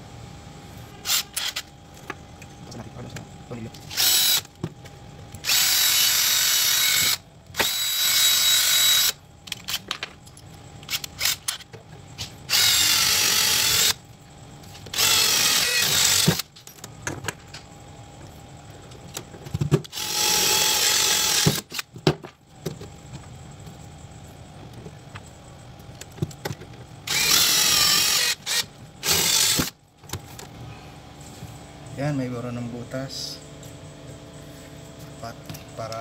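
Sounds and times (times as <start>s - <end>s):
cordless drill drilling metal: 3.9s - 4.5s, 5.4s - 9.2s, 12.5s - 14.0s, 14.9s - 16.4s, 19.9s - 21.8s, 27.1s - 29.8s.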